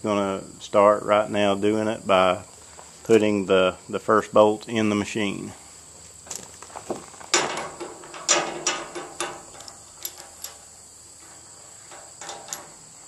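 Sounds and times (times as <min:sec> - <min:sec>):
metal bolt clinks and scrapes: 0:07.3 - 0:13.0.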